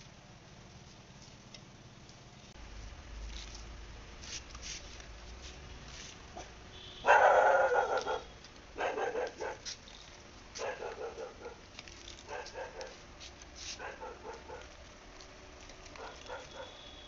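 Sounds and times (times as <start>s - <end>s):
dog barking: 6.4s - 9.7s, 10.6s - 11.6s, 12.3s - 13.0s, 13.7s - 14.7s, 16.0s - 16.8s.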